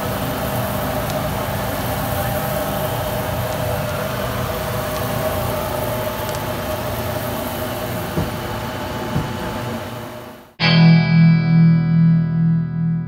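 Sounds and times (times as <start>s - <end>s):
hiss of beans being stirred: 0.0s - 9.0s
roaster motor humming: 0.0s - 10.5s.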